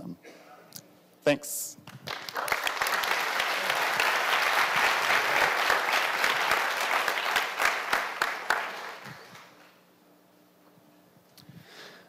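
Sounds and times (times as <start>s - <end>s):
audience applauding: 1.9s - 9.8s.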